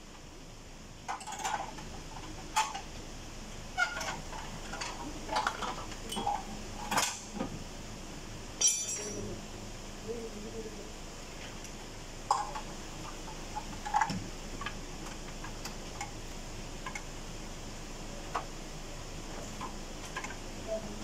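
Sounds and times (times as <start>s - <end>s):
metal parts rattling: 8.6s - 9.2s
metallic clinks and knocks: 8.6s - 9.3s.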